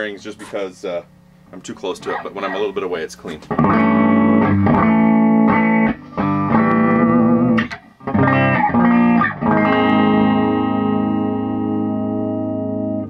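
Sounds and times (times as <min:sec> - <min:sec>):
electric guitar chords strummed: 0:03.4 - 0:13.0.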